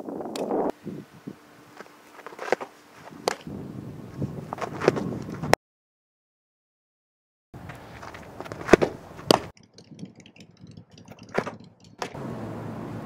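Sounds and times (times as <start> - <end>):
ball smacking into mitt: 3.2 - 3.5, 8.4 - 9.5.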